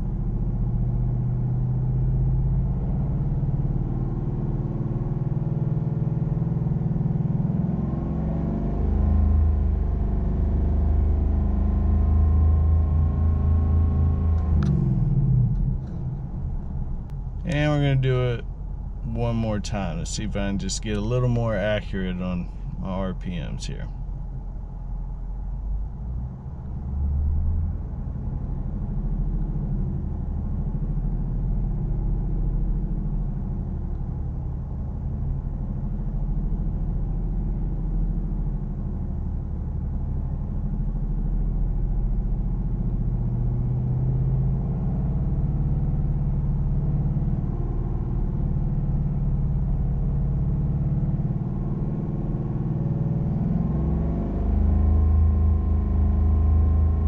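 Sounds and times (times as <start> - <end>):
car engine revving: 6.9 - 18.4, 42.8 - 57.0.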